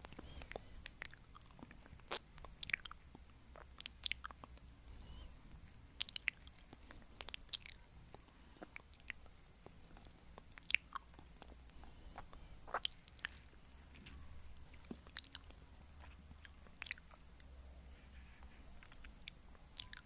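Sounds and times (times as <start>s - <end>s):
mouth clicks and smacks: 0.0s - 4.8s, 6.0s - 13.5s, 14.6s - 17.5s
mouth licking and sucking candy: 8.6s - 13.5s.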